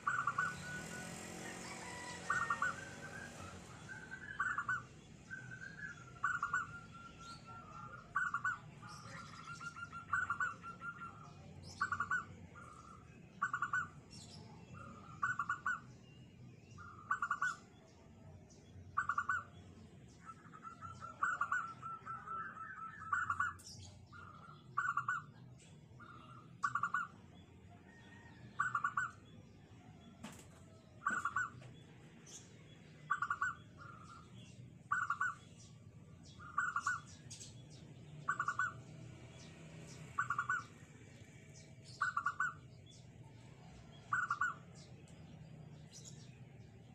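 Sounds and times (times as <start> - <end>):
dove cooing: 0.0 - 8.6, 20.6 - 23.6, 27.9 - 29.1, 31.0 - 31.6, 33.1 - 34.1, 34.9 - 35.4, 36.4 - 37.0, 38.3 - 38.8, 40.2 - 40.6, 42.0 - 42.6, 44.1 - 44.6.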